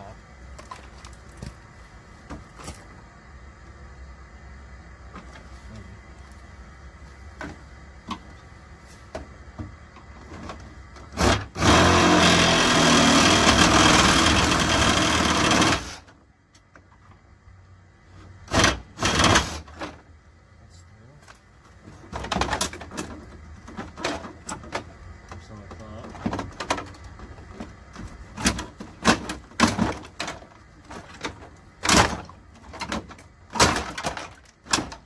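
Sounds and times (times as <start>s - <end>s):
reciprocating saw cutting: 11.2s - 16.0s.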